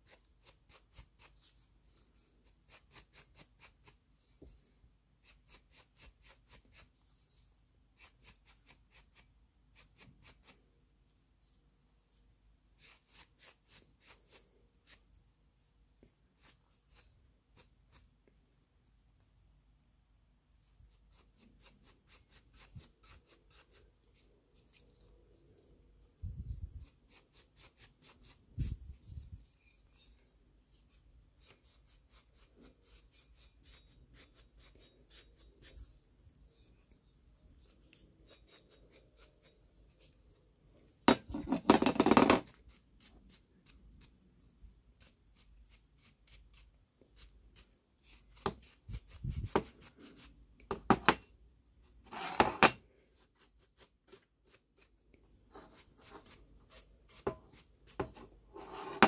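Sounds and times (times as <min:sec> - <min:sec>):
cloth rubbing metal: 0:52.0 - 0:52.8, 0:58.5 - 0:59.0.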